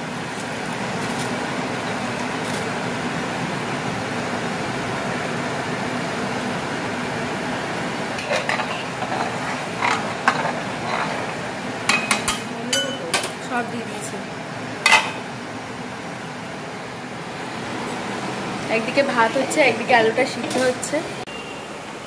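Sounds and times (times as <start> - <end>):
metal ladle clinking on pot: 11.9 - 13.4.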